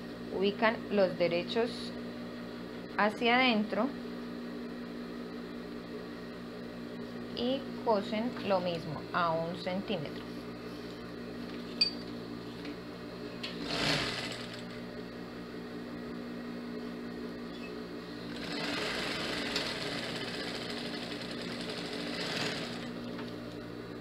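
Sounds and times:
steady hum: 0:00.0 - 0:24.0
sewing machine stitching: 0:13.5 - 0:14.6, 0:18.3 - 0:23.1.

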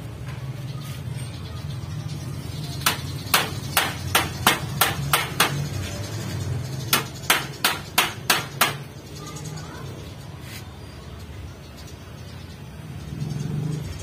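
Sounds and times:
hammer on metal frame: 0:02.8 - 0:05.8, 0:06.9 - 0:08.9.

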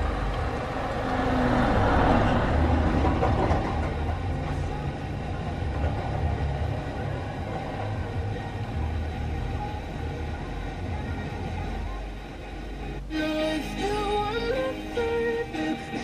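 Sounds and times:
faint radio program audio: 0:04.1 - 0:14.3.

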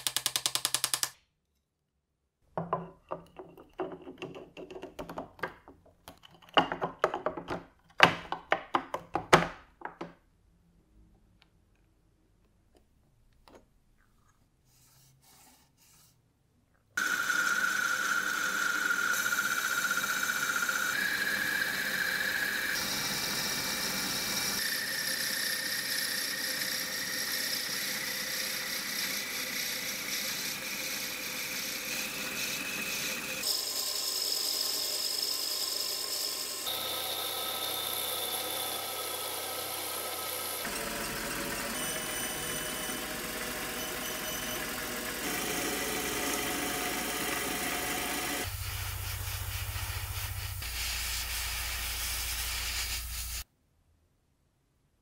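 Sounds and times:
lathe motor whine: 0:17.0 - 0:49.8
tool cutting into wood: 0:36.6 - 0:48.6.

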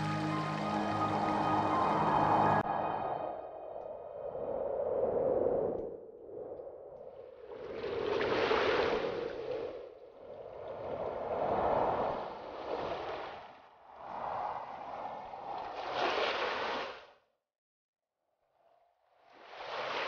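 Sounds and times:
sea waves washing on shore: 0:07.4 - 0:17.0.

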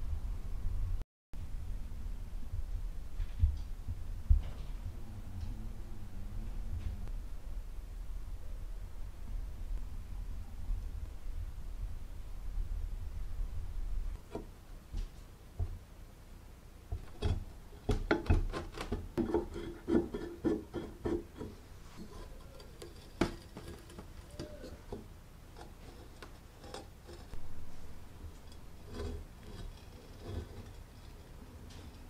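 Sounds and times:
rusted metal parts scraping: 0:17.0 - 0:27.4, 0:28.3 - 0:32.0.

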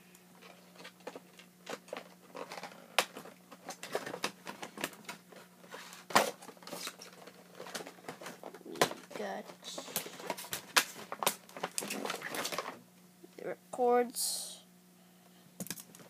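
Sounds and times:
toy packaging rustling and clicking: 0:00.4 - 0:12.8, 0:15.6 - 0:16.0.

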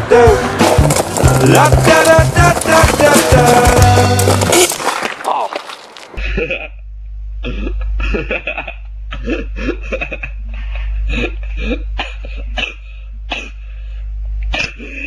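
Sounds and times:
steady low hum: 0:06.2 - 0:15.0.

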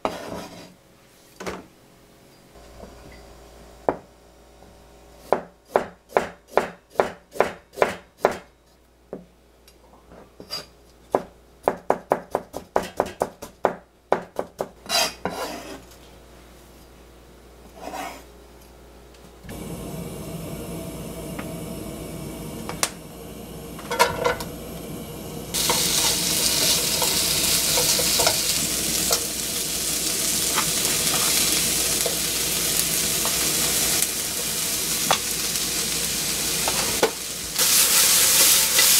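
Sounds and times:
vegetables sizzling in oil: 0:19.5 - 0:38.9
frying pan clattering: 0:23.8 - 0:24.4, 0:25.6 - 0:29.3.

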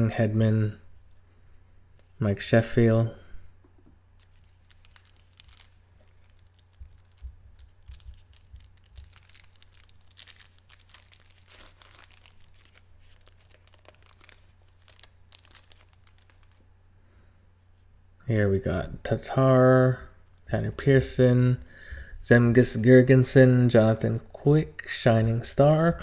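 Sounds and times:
plastic wrapper crinkling and tearing: 0:04.2 - 0:16.8.

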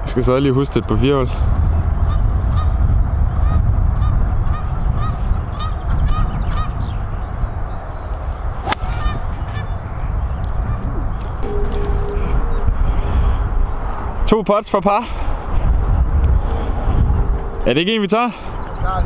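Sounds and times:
wind rumbling on microphone: 0:00.0 - 0:19.0
golf club striking ball: 0:08.6 - 0:09.3.

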